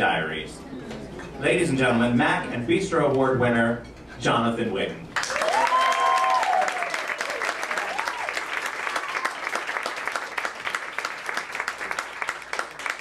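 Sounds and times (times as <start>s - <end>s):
cheering whoops: 5.2s - 9.6s
audience applauding: 5.2s - 13.0s.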